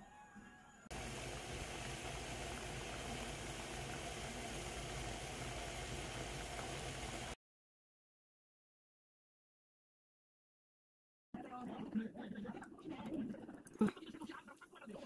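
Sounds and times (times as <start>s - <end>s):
stew bubbling in a pan: 0.9s - 7.4s.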